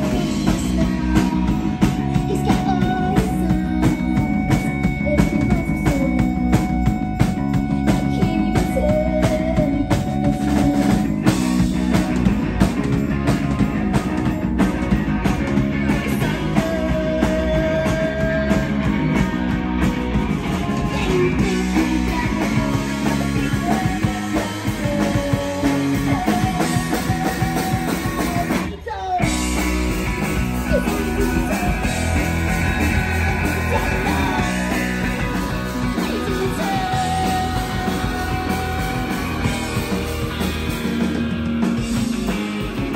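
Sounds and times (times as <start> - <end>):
woman singing: 0.0 - 12.1, 15.9 - 19.8, 20.7 - 29.6, 30.6 - 35.2, 35.9 - 39.8
drum kit: 0.0 - 42.9
electric guitars: 0.0 - 42.9.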